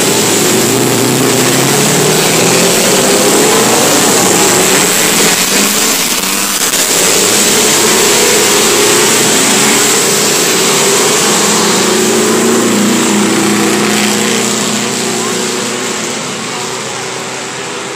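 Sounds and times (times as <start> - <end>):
racing motorcycles pulling away: 0.0 - 17.9.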